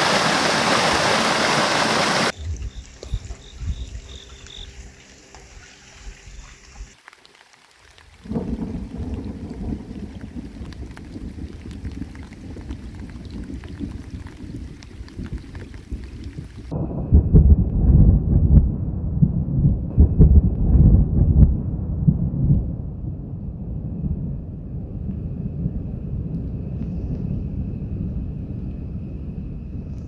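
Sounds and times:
stream rushing: 0:00.0 - 0:08.4
rain falling: 0:00.0 - 0:16.8
thunder rumbling: 0:02.0 - 0:04.6, 0:08.1 - 0:30.0.

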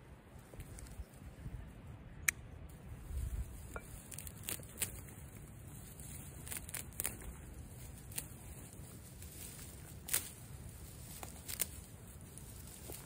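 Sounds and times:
grass stems rustling: 0:02.7 - 0:13.0
crisp snips of grass: 0:03.1 - 0:13.0.

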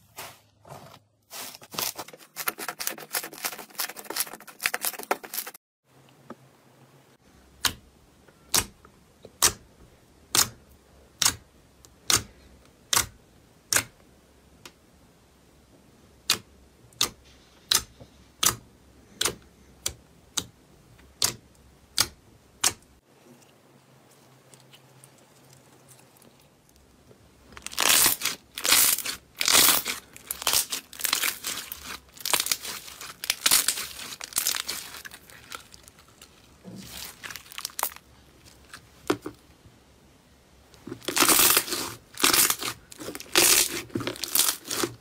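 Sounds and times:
slime squishing and crackling: 0:01.6 - 0:05.6, 0:27.5 - 0:39.2, 0:40.8 - 0:45.0.

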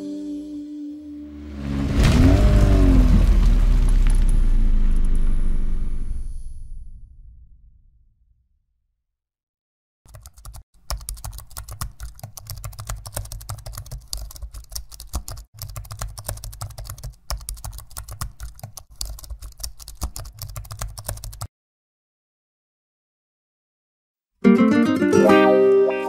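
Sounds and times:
low rumble: 0:01.2 - 0:08.4.

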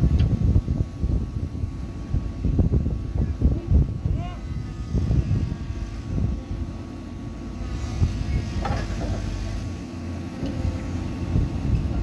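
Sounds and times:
excavator diesel engines rumbling: 0:00.0 - 0:12.0
faint steady whine: 0:00.0 - 0:12.0.

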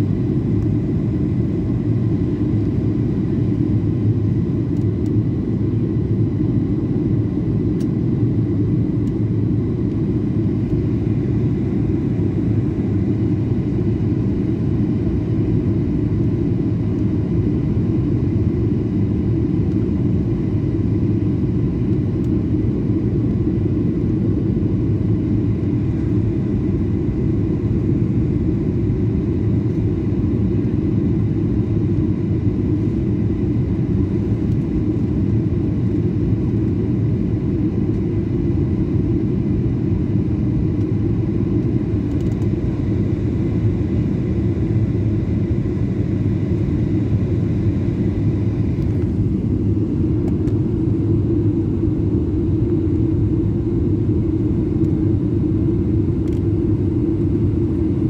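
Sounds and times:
jet engine rumble in cabin: 0:00.0 - 0:58.0.

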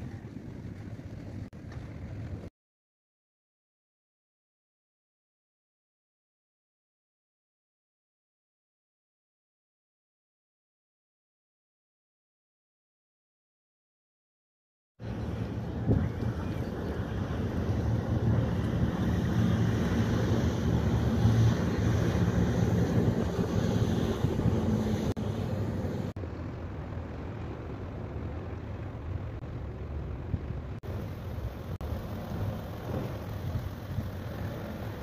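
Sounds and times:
ship engine drone: 0:15.0 - 0:35.0
wind on microphone: 0:15.1 - 0:26.1.

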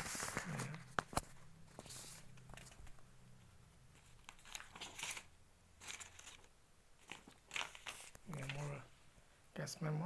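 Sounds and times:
packaging rustling and crinkling: 0:04.0 - 0:08.8.

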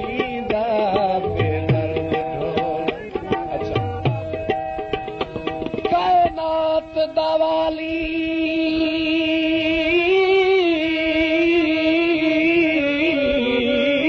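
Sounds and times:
drum strokes: 0:00.0 - 0:06.6.

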